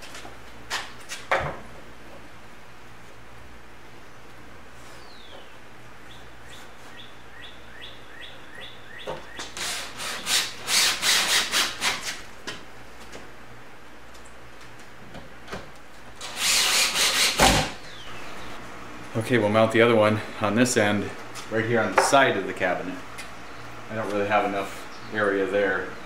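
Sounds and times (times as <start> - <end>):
cordless drill driving screws: 9.6 - 12.2, 16.2 - 17.7
screws grinding into wood: 9.6 - 12.2, 16.2 - 17.8.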